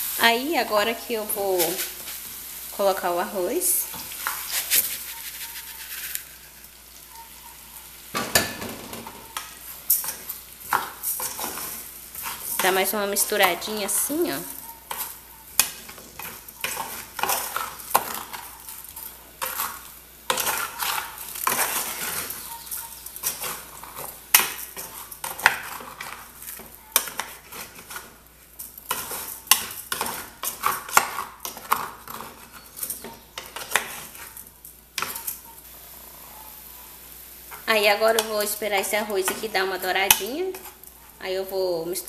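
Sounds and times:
rice sizzling in oil: 0.0 - 42.0
metal spoon scraping a saucepan: 3.8 - 7.3, 9.9 - 28.2.

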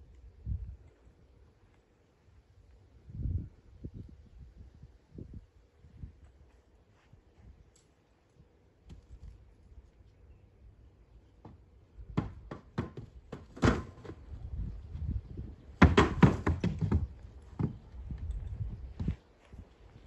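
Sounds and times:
horse hooves on wooden boards: 11.3 - 14.4, 15.7 - 19.2.

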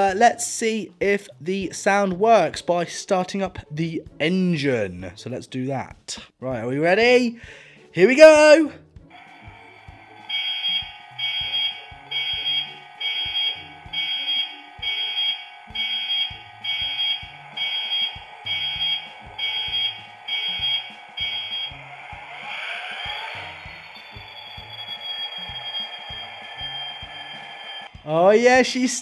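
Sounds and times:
diesel engine sound with rising whine: 9.1 - 27.9
electronic beeps: 9.2 - 28.0.

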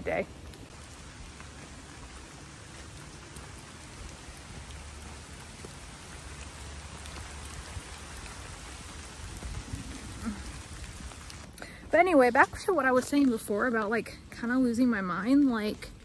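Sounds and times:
light rain pattering: 0.0 - 16.0
single raindrop ticks: 0.4 - 9.7.

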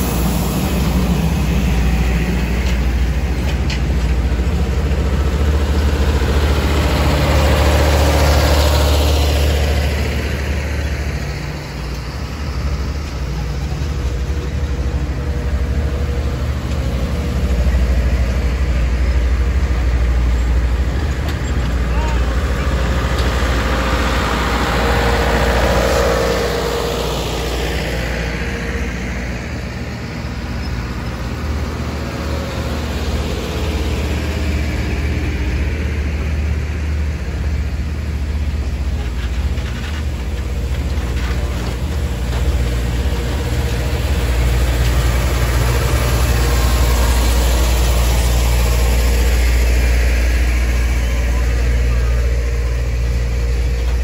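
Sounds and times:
vehicle engine rumbling: 0.0 - 54.0.

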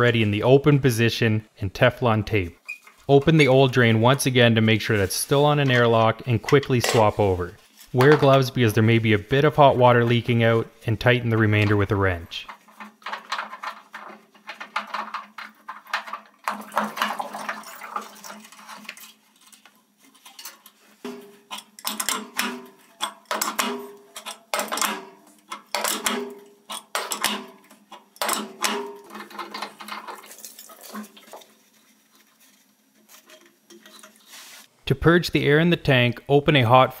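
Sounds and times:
metal clinks and scrapes: 12.4 - 16.6, 18.3 - 34.7
wrench clanking against fitting: 21.1 - 30.6.

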